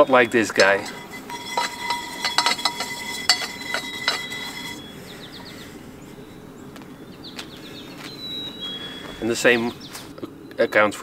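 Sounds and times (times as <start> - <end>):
dishes and cutlery clattering: 0.5 - 4.8.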